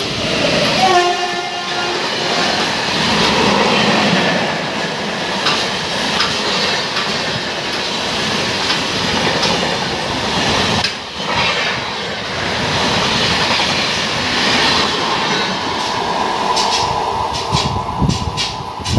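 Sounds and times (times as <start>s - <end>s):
train rushing rumble: 0.0s - 18.9s
wheels clattering over rail joints: 5.3s - 18.9s.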